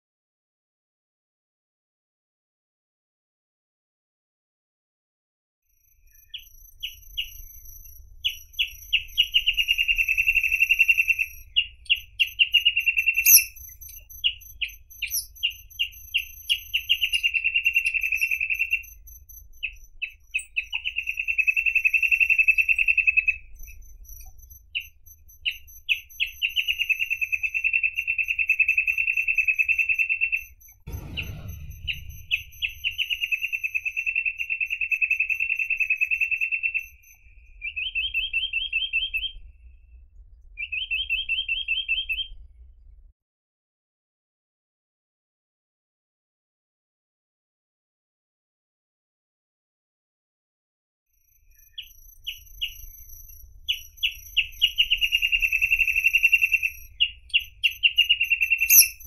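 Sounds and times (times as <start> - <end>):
bird singing trills: 6.0 - 39.5, 40.6 - 42.4, 51.5 - 59.0
brief low thud: 30.9 - 33.2
low rumble: 30.9 - 34.0.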